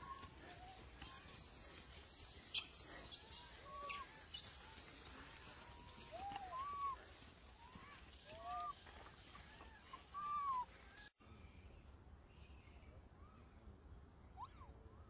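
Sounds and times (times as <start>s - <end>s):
macaques squeaking calls: 0.2s - 6.9s.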